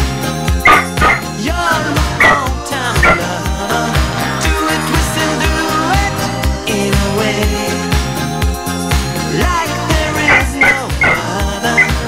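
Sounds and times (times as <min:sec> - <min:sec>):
pop music with steady beat: 0:00.0 - 0:12.0
small dog yipping: 0:00.7 - 0:01.2.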